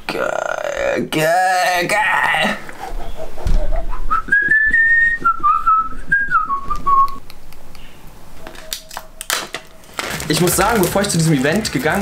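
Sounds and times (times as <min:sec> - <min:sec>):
person whistling a tune: 0:04.1 - 0:07.2.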